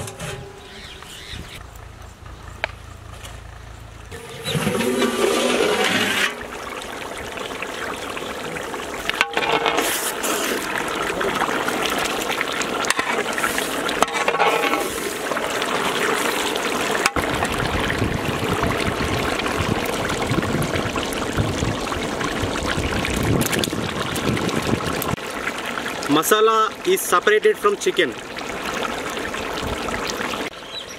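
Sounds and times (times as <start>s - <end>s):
curry bubbling and sizzling in pot: 4.1s - 30.9s.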